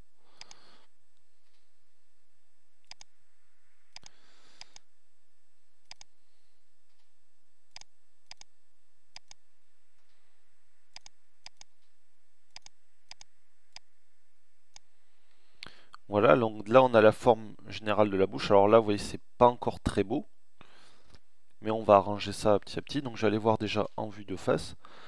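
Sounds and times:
faint steady hiss: 0.0s - 25.0s
computer mouse clicks: 0.4s - 0.6s, 2.8s - 3.1s, 3.9s - 4.9s, 5.8s - 6.2s, 7.7s - 8.5s, 9.1s - 9.4s, 10.9s - 11.9s, 12.5s - 13.9s.

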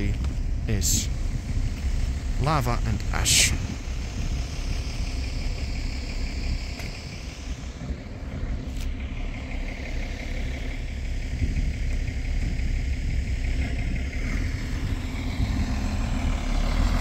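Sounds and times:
diesel engine low rumble: 0.0s - 17.0s.

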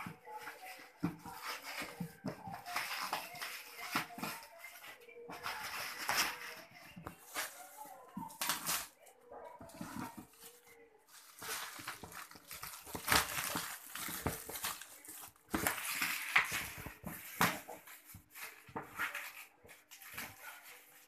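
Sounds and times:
plastic wrap crinkling: 9.7s - 21.0s.

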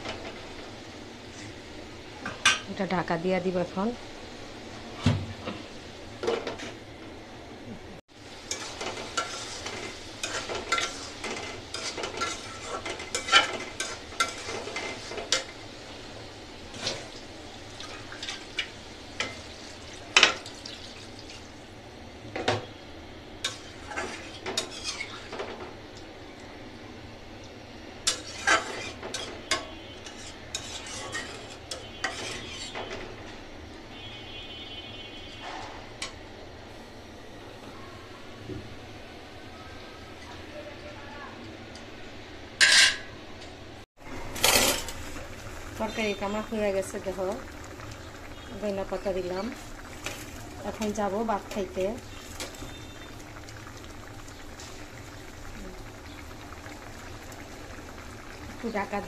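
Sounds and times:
pan sizzling: 8.0s - 26.7s, 27.4s - 34.2s, 44.0s - 59.0s
metal spatula scraping a pan: 8.5s - 15.6s, 23.4s - 25.4s, 28.1s - 33.0s.

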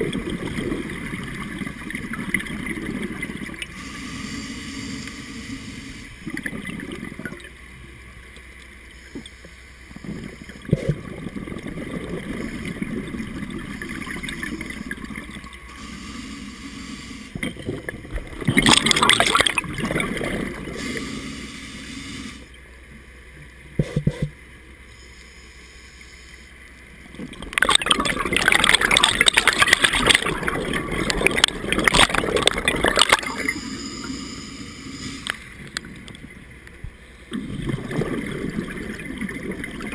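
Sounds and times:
air bubbles gurgling underwater: 0.0s - 3.7s, 10.0s - 15.6s, 17.4s - 20.9s, 27.1s - 33.5s, 37.3s - 39.9s
scuba regulator breathing: 3.7s - 6.2s, 15.7s - 17.4s, 20.7s - 22.5s, 33.3s - 35.6s.

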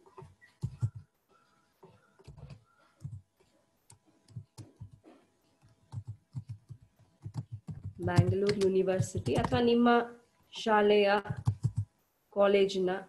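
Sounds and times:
typing on computer keyboard: 0.5s - 1.1s, 5.6s - 9.7s, 11.2s - 11.9s.

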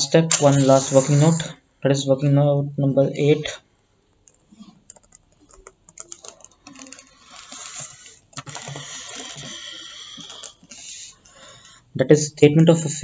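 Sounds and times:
steady hiss: 0.0s - 1.6s.

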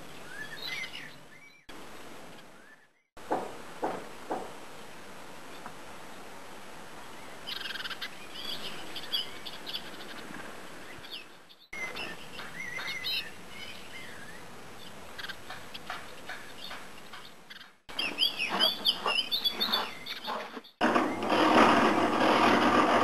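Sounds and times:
bird chirps and trills: 0.1s - 1.7s, 7.2s - 21.4s.

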